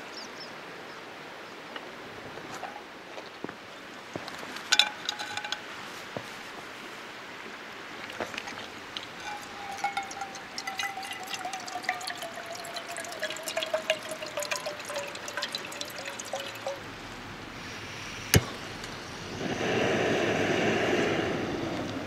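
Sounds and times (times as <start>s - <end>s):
water pouring into saucepan: 8.3s - 16.8s
hiss: 17.6s - 22.0s.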